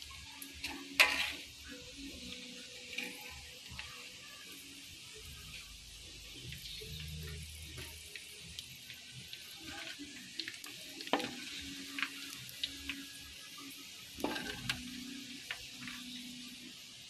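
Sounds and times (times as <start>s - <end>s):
meat sizzling in hot oil: 0.0s - 17.0s.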